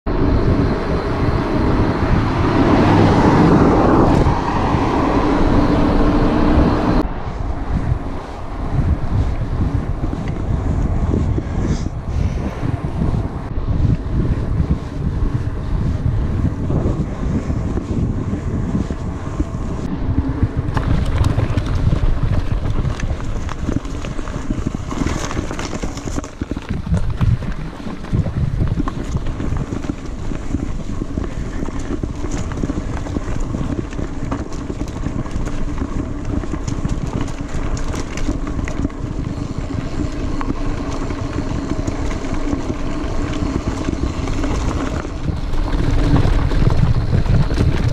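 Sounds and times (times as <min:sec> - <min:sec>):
wind buffeting microphone: 0:00.0 - 0:47.9
bike tyres rolling: 0:00.1 - 0:47.9
bike knocks and rattles: 0:08.8 - 0:47.9.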